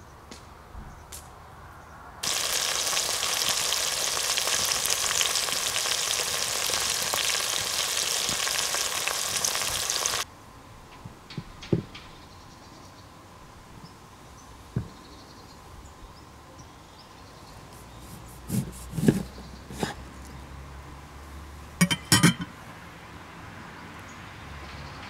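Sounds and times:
low outdoor background: 0.0 - 25.0
cookware and utensils clinking: 21.8 - 22.6.

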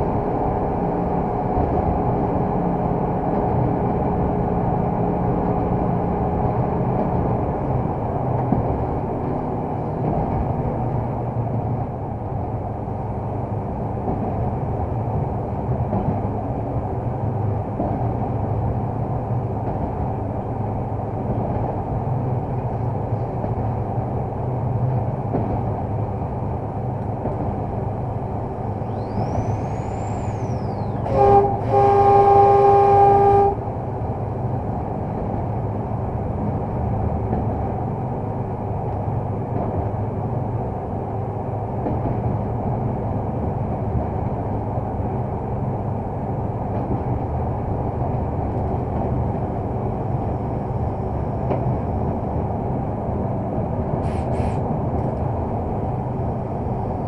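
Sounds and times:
wheels rumbling on rails: 0.0 - 57.0
locomotive horn: 30.6 - 33.7.

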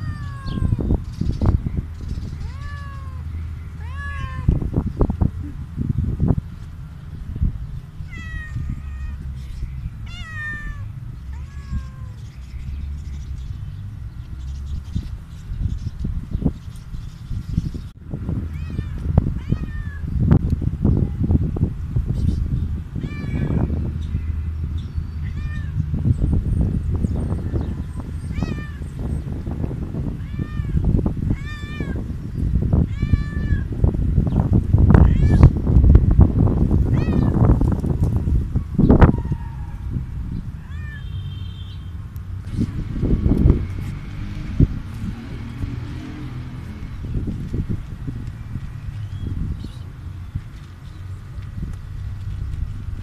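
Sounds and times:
cat meowing loudly: 0.0 - 0.9, 2.4 - 4.6, 8.0 - 9.4, 10.0 - 12.2, 18.5 - 20.1, 23.0 - 24.3, 25.2 - 25.8, 28.3 - 28.8, 30.1 - 32.1, 32.8 - 33.7, 34.9 - 35.6, 36.9 - 37.6, 38.8 - 39.9, 40.6 - 41.3.

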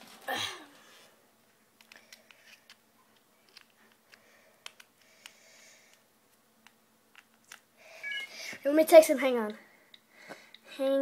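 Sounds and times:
faint clicks and taps: 1.8 - 6.0, 6.6 - 7.7, 9.4 - 10.7.

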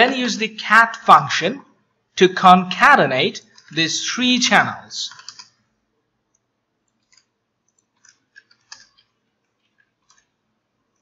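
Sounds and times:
keyboard typing clicks: 5.1 - 5.6, 6.3 - 10.3.

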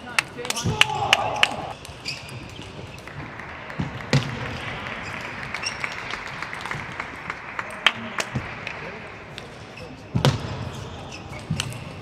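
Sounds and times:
light applause: 0.2 - 1.8.

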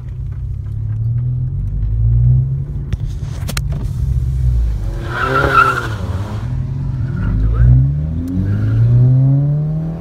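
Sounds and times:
car engine and road noise: 0.0 - 10.0.

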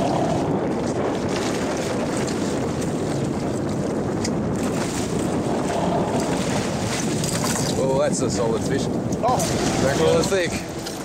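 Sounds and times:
sea water washing along hull: 0.0 - 11.0
wind buffeting microphone: 0.0 - 11.0.

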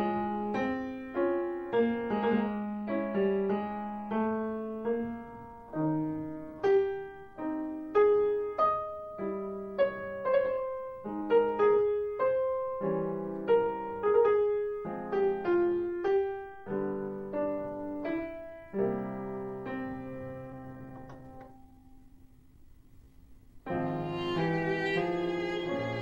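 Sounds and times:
solo piano music: 0.0 - 22.3, 23.6 - 26.0.

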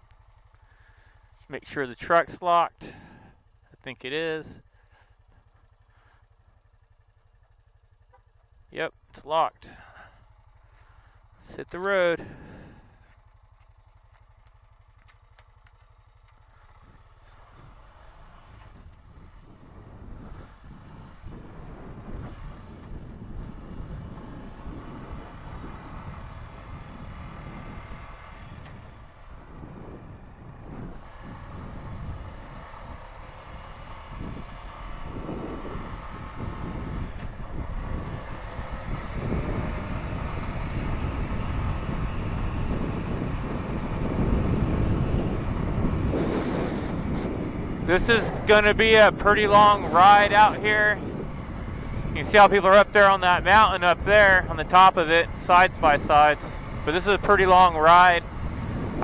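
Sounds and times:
atv engine idling: 0.0 - 59.0
wind noise on microphone: 18.7 - 59.0.

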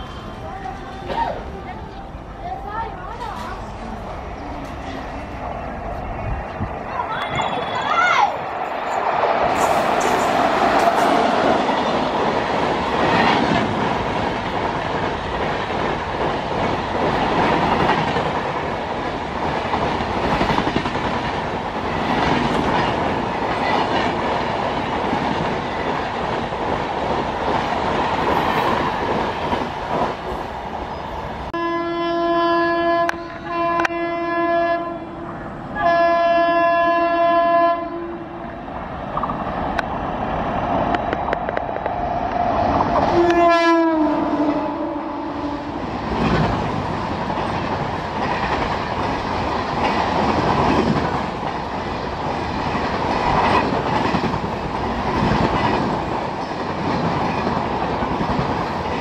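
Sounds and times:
train rumble and wheel clatter: 0.0 - 59.0
locomotive horn blasts: 31.6 - 35.2, 35.8 - 38.2, 43.1 - 45.7.

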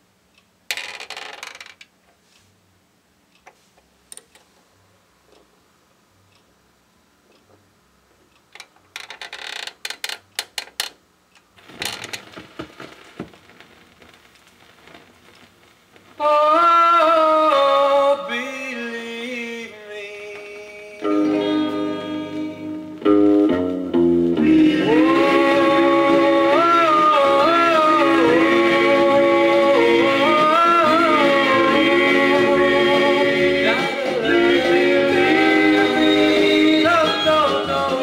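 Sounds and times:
record surface noise: 0.6 - 2.6, 3.3 - 5.7, 7.2 - 18.2, 20.3 - 38.0
turntable mechanism clicks: 8.3 - 15.7
doo-wop record playing: 11.6 - 38.0.

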